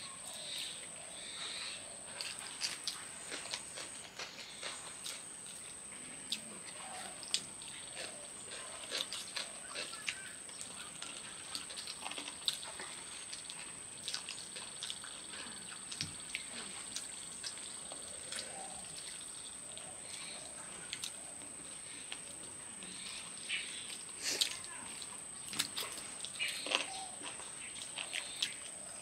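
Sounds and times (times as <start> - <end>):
chewing and wet mouth clicks: 6.3 - 21.2, 23.2 - 28.8.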